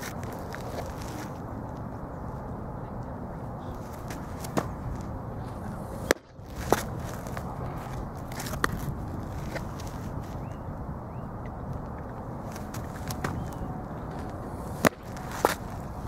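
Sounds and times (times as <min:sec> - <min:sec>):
steady background rush: 0:00.0 - 0:16.0
baseball smacking into a mitt: 0:03.8 - 0:05.1, 0:12.5 - 0:13.6, 0:14.2 - 0:15.8.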